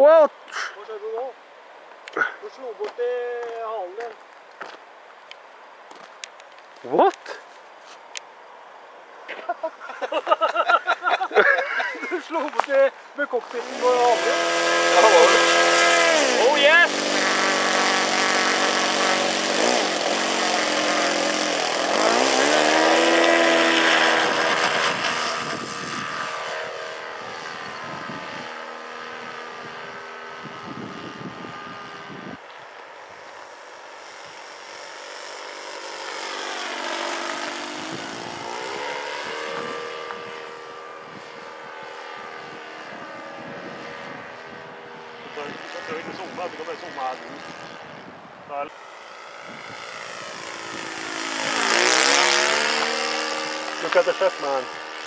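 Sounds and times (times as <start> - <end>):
model airplane propeller engine: 11.4 - 55.0.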